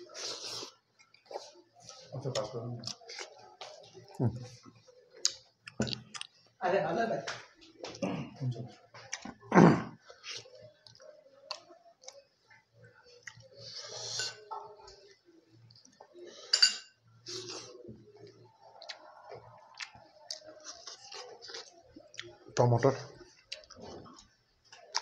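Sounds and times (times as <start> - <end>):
chewing and lip smacks: 5.2 - 6.4, 10.1 - 13.8, 17.3 - 22.6, 23.4 - 25.0.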